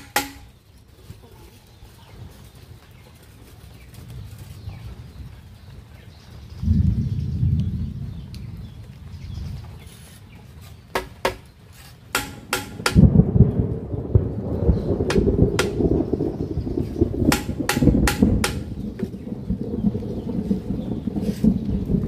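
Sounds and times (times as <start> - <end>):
hammer knocking on bamboo: 0.0 - 0.4, 10.9 - 11.5, 12.1 - 13.0, 15.1 - 15.8, 17.3 - 18.7
thunder rumbling: 4.0 - 10.4, 12.3 - 22.0.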